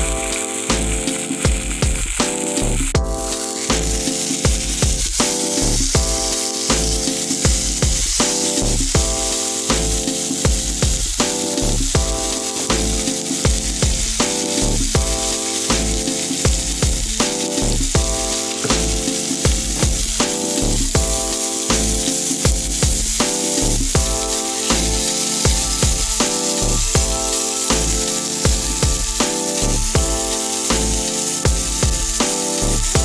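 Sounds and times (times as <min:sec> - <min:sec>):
background music with deep bass: 0:00.0 - 0:33.0
steaks sizzling on grill pan: 0:00.0 - 0:33.0.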